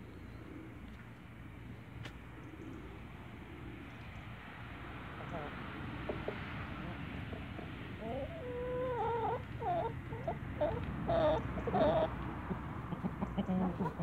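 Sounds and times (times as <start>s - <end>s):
low background hum: 0.0s - 14.0s
chickens whining calls: 5.2s - 14.0s.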